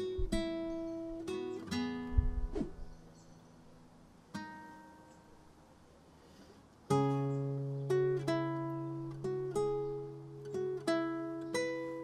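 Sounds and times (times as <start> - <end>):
fingerpicked classical guitar: 0.0 - 5.4, 6.8 - 12.0.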